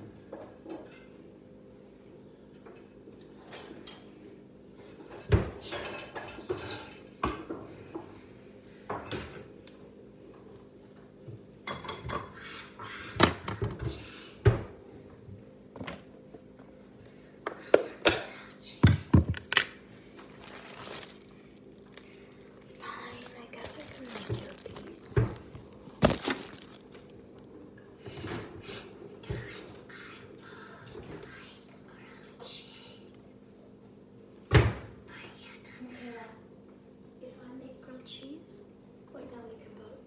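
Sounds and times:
low steady hum: 0.0 - 40.0
dishes and utensils clattering: 5.7 - 7.5.

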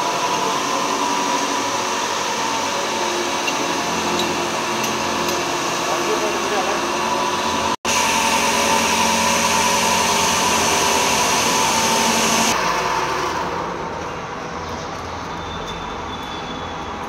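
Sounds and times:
power tool grinding metal: 0.0 - 12.6.

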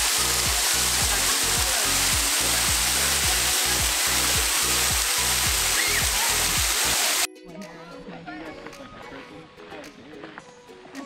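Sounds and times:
waterfall rushing: 0.0 - 7.3
music with bass beat: 0.0 - 7.7.

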